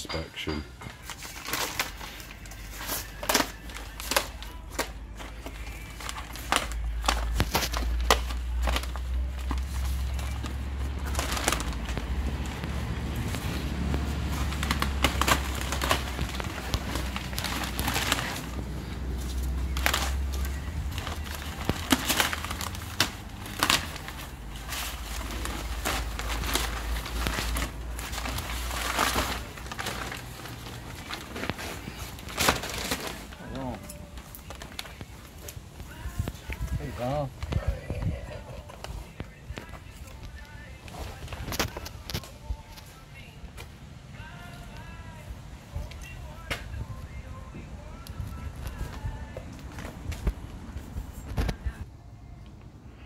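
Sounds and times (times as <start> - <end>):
plastic sheeting crinkling: 1.0 - 43.4.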